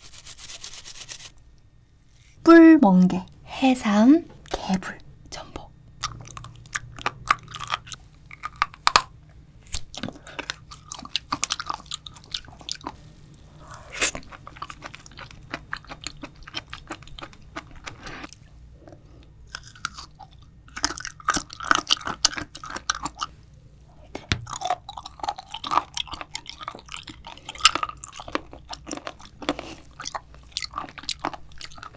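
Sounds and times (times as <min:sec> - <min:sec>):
crisp biting and wet chewing: 0:06.0 - 0:13.0, 0:13.6 - 0:23.4, 0:24.2 - 0:31.9.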